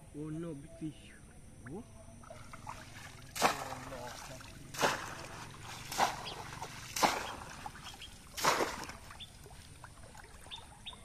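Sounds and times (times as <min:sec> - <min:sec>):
water dripping: 0:01.6 - 0:11.0
trap splashing into water: 0:02.2 - 0:10.4.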